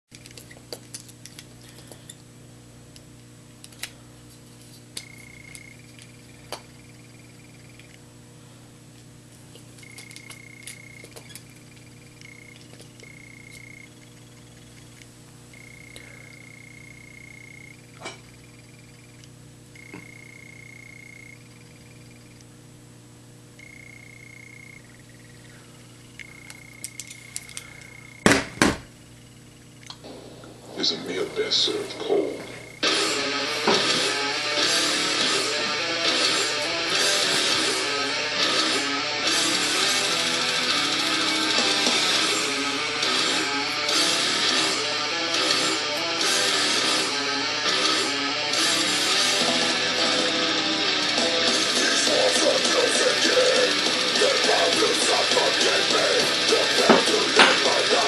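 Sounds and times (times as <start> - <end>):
steady low hum: 0.1 - 58.0
faint high whine: 1.3 - 58.0
faint high beeping tone: 9.8 - 22.4, 23.6 - 25.4, 26.0 - 27.1.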